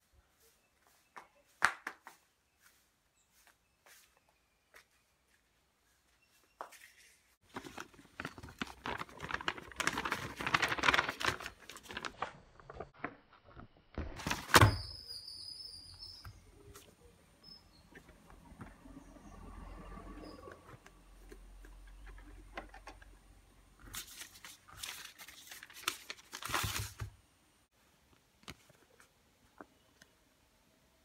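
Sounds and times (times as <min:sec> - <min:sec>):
paper and cardboard rustling: 0:06.7 - 0:13.6, 0:14.2 - 0:14.9, 0:23.8 - 0:27.2.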